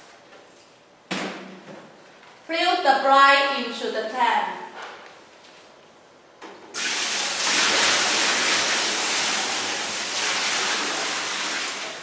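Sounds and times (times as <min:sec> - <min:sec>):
liquid pouring and splashing: 0:06.8 - 0:12.0.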